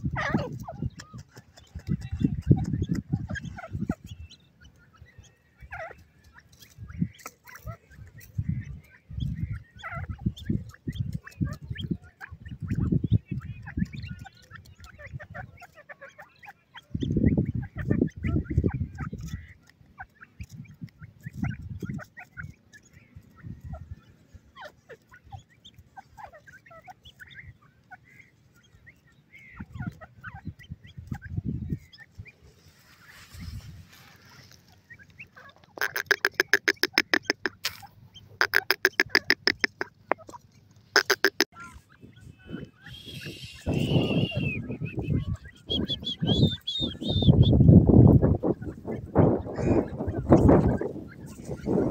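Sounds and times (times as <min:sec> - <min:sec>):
bird clucking calls: 0:00.0 - 0:51.9
high chick peeps: 0:00.0 - 0:51.9.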